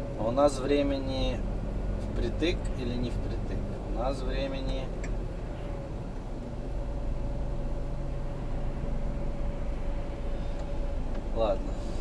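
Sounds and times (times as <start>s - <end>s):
diesel engine idling: 0.0s - 12.0s
thin steady hum: 2.4s - 12.0s.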